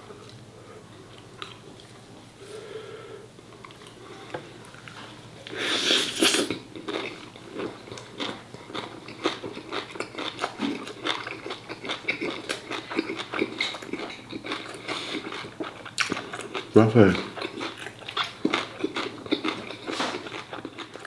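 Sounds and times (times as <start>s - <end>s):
close-up chewing: 6.5s - 21.0s.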